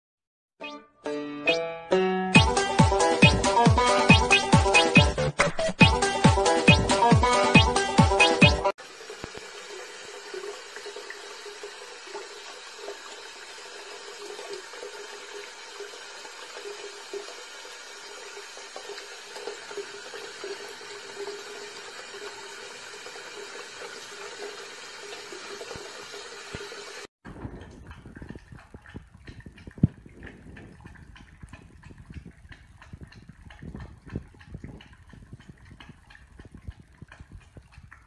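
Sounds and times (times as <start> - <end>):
tap running into washbasin: 8.8 - 38.0.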